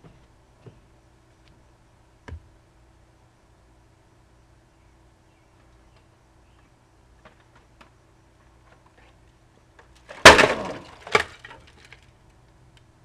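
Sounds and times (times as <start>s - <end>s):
hard object crashing: 10.1s - 11.4s
pieces clattering: 10.1s - 12.1s.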